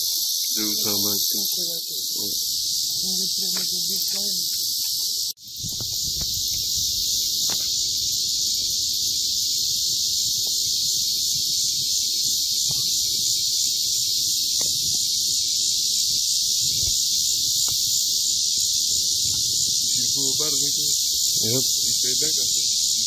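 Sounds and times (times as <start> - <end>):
insects buzzing: 0.0 - 23.0.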